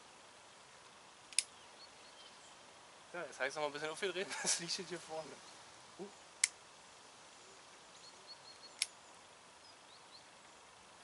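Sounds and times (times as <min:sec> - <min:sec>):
sharp click: 0:01.3 - 0:01.5, 0:08.8 - 0:09.0
faint bird chirps: 0:01.5 - 0:02.7, 0:05.1 - 0:10.8.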